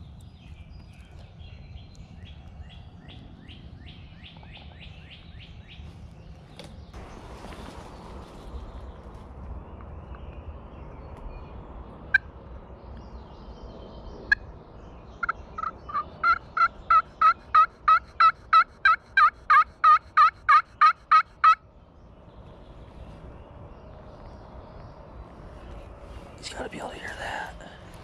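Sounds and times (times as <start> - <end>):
turkey call yelps and clucks: 15.2 - 21.6.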